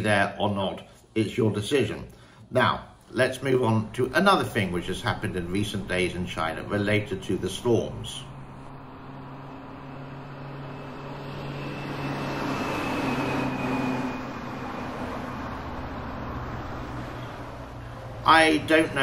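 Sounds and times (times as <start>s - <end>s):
low engine hum: 4.0s - 19.0s
vehicles rushing through water: 4.6s - 19.0s.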